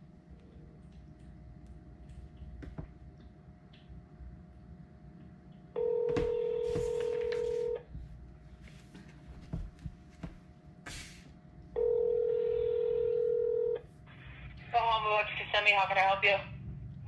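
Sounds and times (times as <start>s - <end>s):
phone ringback tone: 5.8s - 7.8s, 11.8s - 13.8s.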